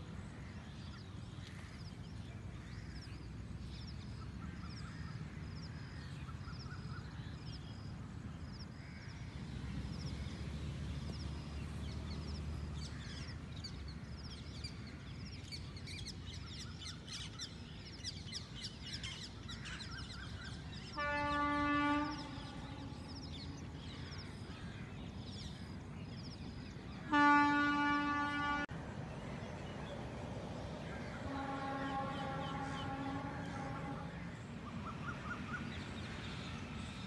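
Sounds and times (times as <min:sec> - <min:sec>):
birds chirping: 0:00.2 - 0:37.0
train horn blasts: 0:20.8 - 0:23.7, 0:27.0 - 0:28.8, 0:31.2 - 0:34.4.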